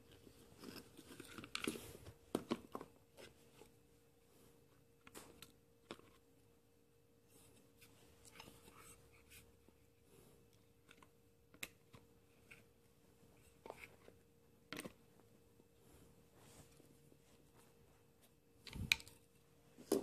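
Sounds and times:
plastic parts clicking and rustling: 0:00.0 - 0:03.7.

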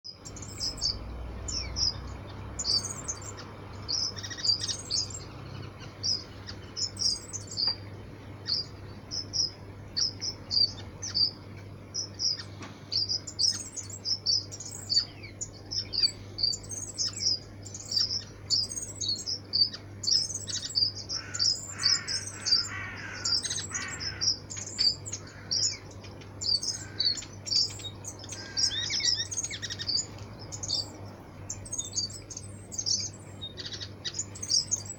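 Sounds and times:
flock of small birds chirping: 0:00.1 - 0:34.9.

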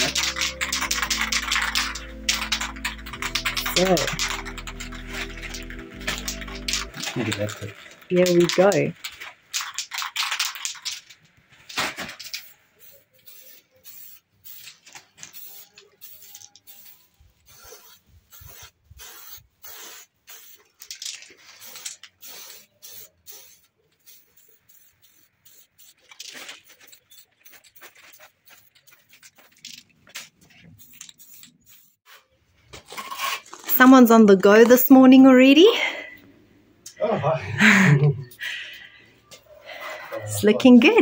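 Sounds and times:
spray paint can hissing: 0:00.0 - 0:11.2, 0:12.0 - 0:32.1.

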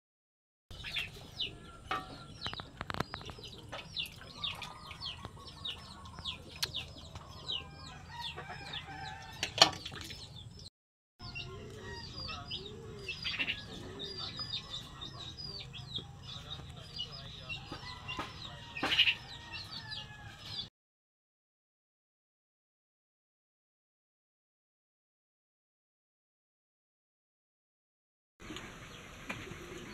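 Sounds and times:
chickens clucking: 0:00.7 - 0:10.6, 0:11.2 - 0:20.6
chicks peeping: 0:00.7 - 0:20.7.

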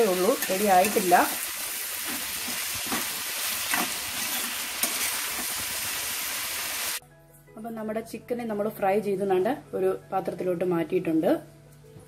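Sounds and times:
spoon stirring and scraping: 0:00.0 - 0:05.7
vegetables sizzling in oil: 0:00.0 - 0:07.0.

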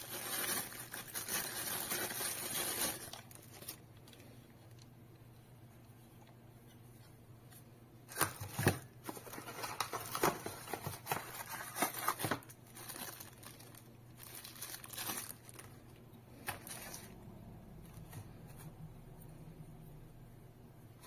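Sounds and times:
plastic bag crinkling: 0:00.0 - 0:04.9, 0:08.1 - 0:17.2.

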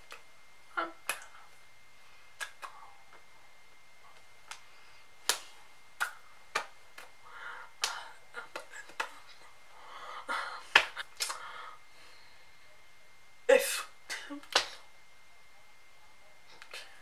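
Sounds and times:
hands snapping and slapping: 0:01.0 - 0:01.3, 0:02.4 - 0:02.8, 0:04.4 - 0:07.2, 0:07.8 - 0:09.2, 0:10.7 - 0:11.5, 0:14.4 - 0:14.8
soft breathy hiss: 0:07.0 - 0:12.9.

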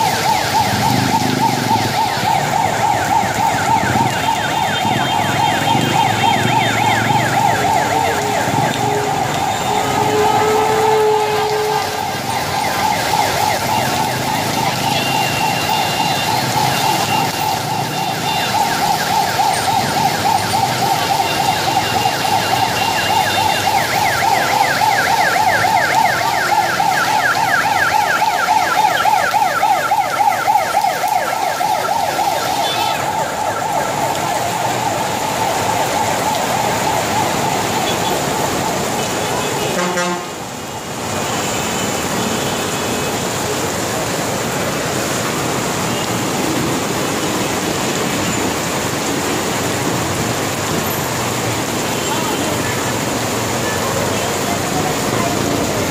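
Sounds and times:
siren wailing and warbling: 0:00.0 - 0:38.9.

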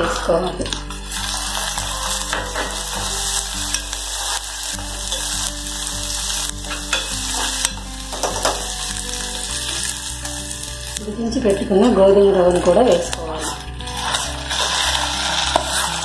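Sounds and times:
vegetables sizzling in hot oil: 0:00.0 - 0:16.0
metal spoon scraping a pot: 0:12.6 - 0:16.0.

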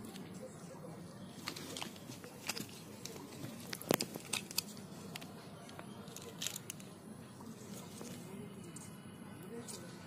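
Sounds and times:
low steady background hum: 0:00.0 - 0:10.0
plastic toy parts clicking: 0:02.4 - 0:06.9.

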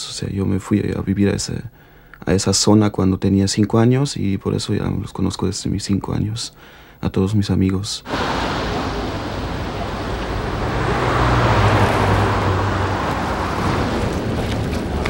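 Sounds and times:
city street traffic: 0:08.1 - 0:15.0
vehicle passing close by: 0:08.1 - 0:15.0.

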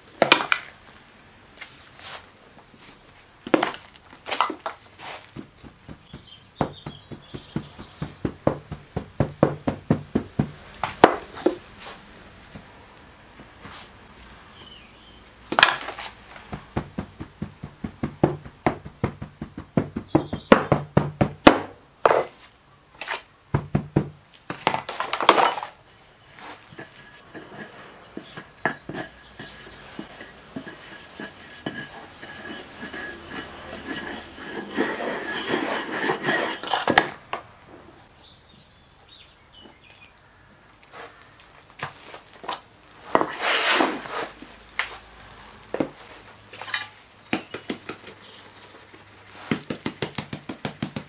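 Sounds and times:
wooden bar scraping sand: 0:01.6 - 0:09.1, 0:10.8 - 0:12.0, 0:15.5 - 0:20.6, 0:24.6 - 0:37.5, 0:40.9 - 0:41.2, 0:41.8 - 0:45.1, 0:45.7 - 0:50.6
sand being rammed: 0:03.6 - 0:12.1, 0:40.9 - 0:51.0.

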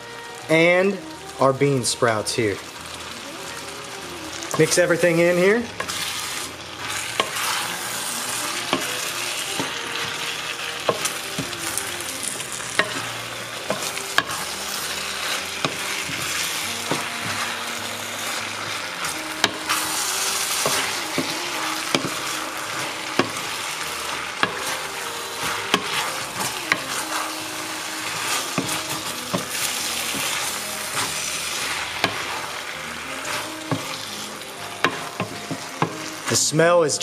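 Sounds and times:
noodles sizzling in a wok: 0:00.0 - 0:37.0
wooden spatula knocking a pan: 0:12.8 - 0:13.1, 0:25.4 - 0:26.1.

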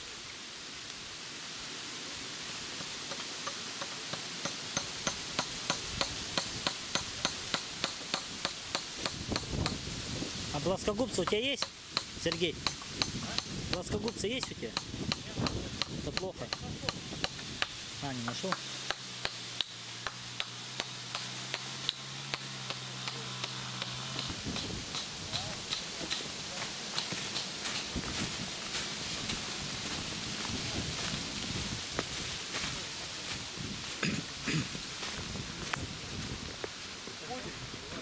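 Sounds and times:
hand tool striking wood: 0:02.8 - 0:09.8, 0:11.1 - 0:28.0.

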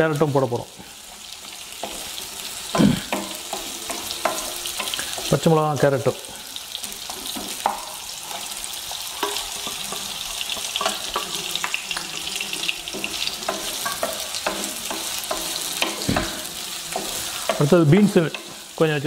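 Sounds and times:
vegetables sizzling in oil: 0:00.0 - 0:19.0
wooden spatula knocking and scraping: 0:01.5 - 0:05.5, 0:06.7 - 0:19.0.

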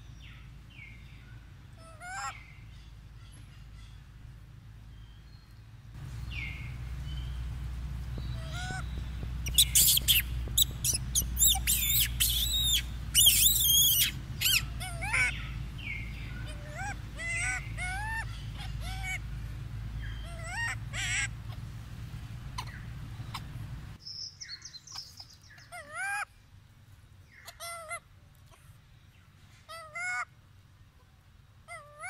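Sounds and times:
baby monkey squealing: 0:01.8 - 0:02.4, 0:08.4 - 0:15.5, 0:16.4 - 0:19.2, 0:20.2 - 0:21.6, 0:22.5 - 0:23.5, 0:24.9 - 0:26.3, 0:27.4 - 0:28.0.

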